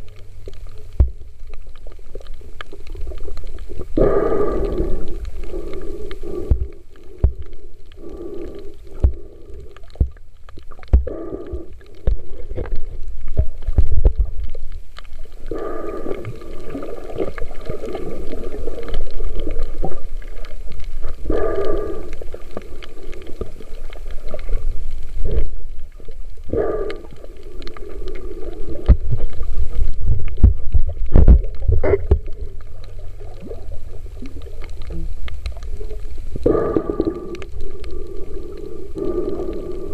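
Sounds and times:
underwater rumble: 0.0 - 39.9.

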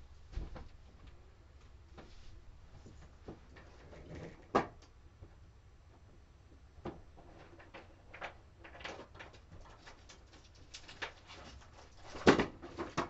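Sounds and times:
rummaging clicks and rustles: 6.9 - 13.0.

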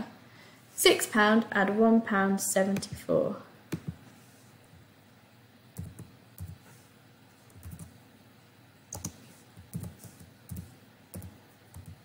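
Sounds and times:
computer keyboard typing: 5.8 - 6.6, 7.5 - 8.0, 8.9 - 12.0.

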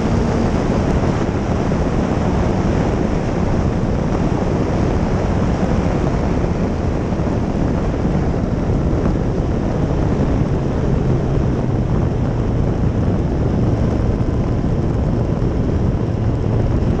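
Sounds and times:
motorcycle engine at road speed: 0.0 - 17.0
wind noise on microphone: 0.0 - 17.0.

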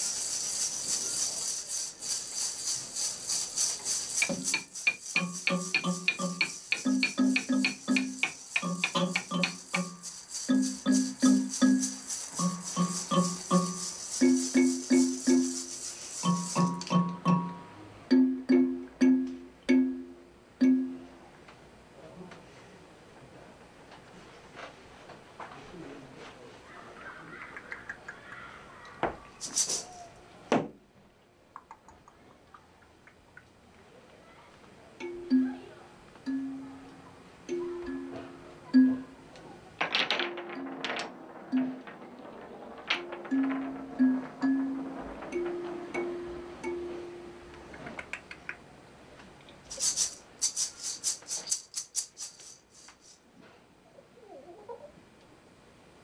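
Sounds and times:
hissing rustle: 0.0 - 16.9, 29.3 - 30.2, 49.6 - 53.3
hand-held shaker rattling: 0.0 - 17.6, 29.3 - 30.2, 49.6 - 53.3
small props clicking on wooden floor: 2.2 - 17.0, 39.8 - 45.7.

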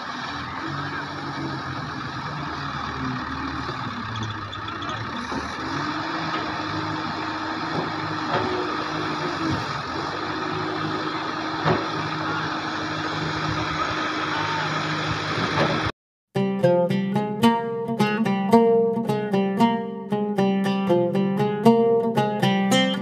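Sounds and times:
excavator diesel engine under load: 0.0 - 15.9
machine knocks: 7.5 - 9.7, 10.5 - 12.2.

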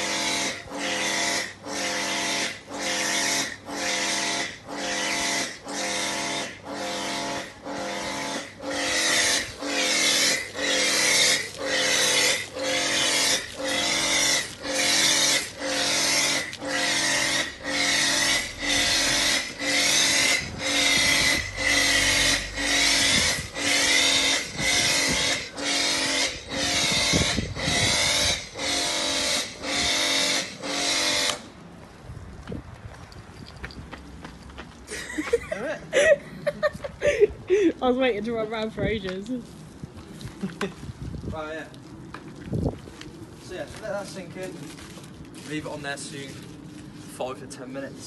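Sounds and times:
pressure washer motor pulsing: 0.0 - 31.6.

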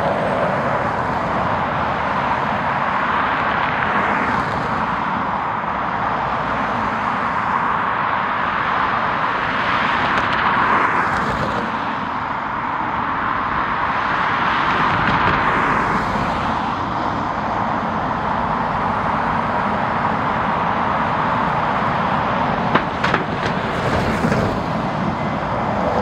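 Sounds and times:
jet engines roaring: 13.4 - 26.0.

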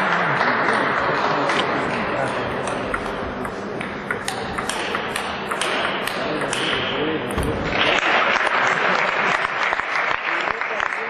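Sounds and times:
applause: 0.0 - 1.6, 7.7 - 11.0
murmur of voices in hall: 0.0 - 11.0
table tennis ball clicking: 2.6 - 6.8.

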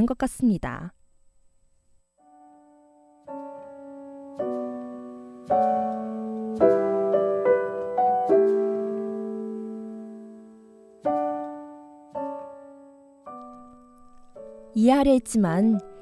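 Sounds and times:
slow gentle piano music: 2.2 - 16.0.

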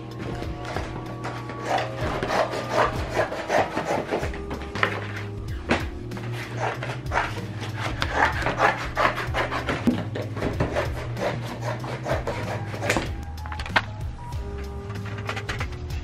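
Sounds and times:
scissors snipping cardboard: 1.2 - 5.0, 6.5 - 13.2.

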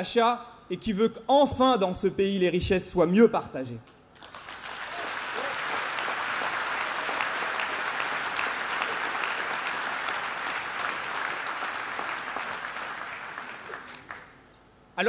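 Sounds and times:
audience applauding: 4.2 - 14.4.

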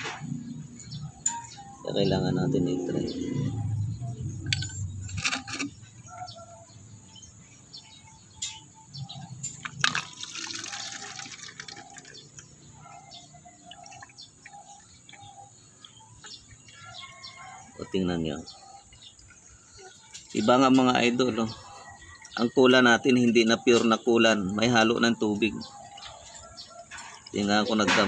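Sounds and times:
liquid trickling into plastic bottle: 9.8 - 12.4.

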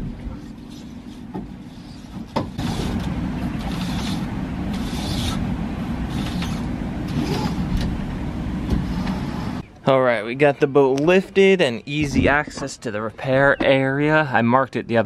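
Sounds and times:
electric winch motor humming: 0.5 - 9.6.

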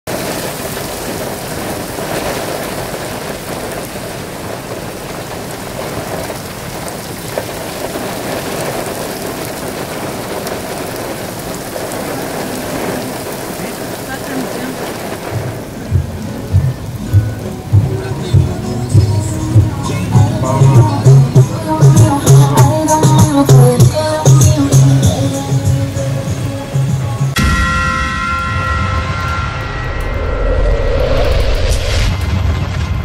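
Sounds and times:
heavy rain on pavement: 0.0 - 27.4.

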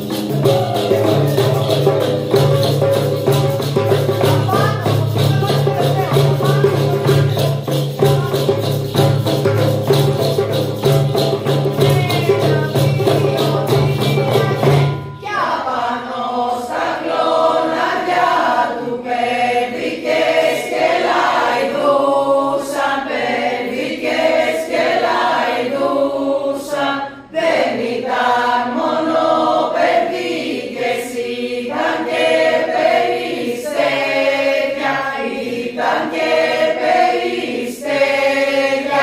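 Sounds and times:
frame drums: 0.0 - 15.4
group singing in two parts: 0.0 - 39.0.

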